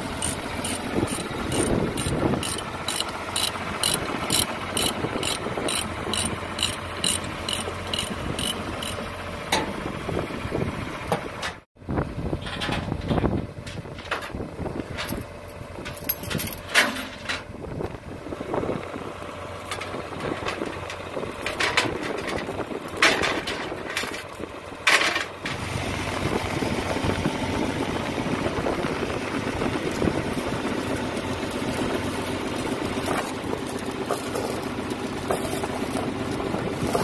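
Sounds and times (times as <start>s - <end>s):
engine idling: 0.0s - 37.0s
steel chains rattling: 0.1s - 9.0s, 15.9s - 17.5s, 19.2s - 25.5s, 29.8s - 37.0s.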